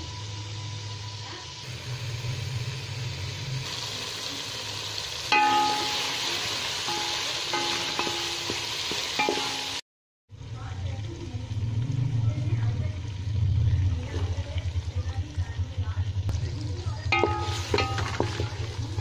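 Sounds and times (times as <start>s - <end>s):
food sizzling in a pot: 0.0s - 19.0s
metal spoon clinking on pot: 5.3s - 9.8s, 17.1s - 18.7s.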